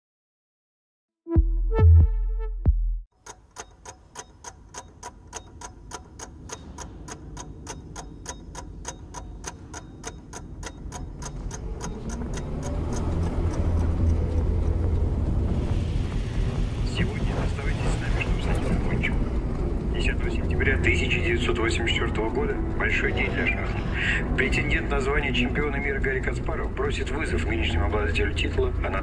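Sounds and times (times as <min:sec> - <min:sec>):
clock ticking: 0:03.1 - 0:15.4, 0:16.9 - 0:29.0
low rumbling drone: 0:11.4 - 0:29.0.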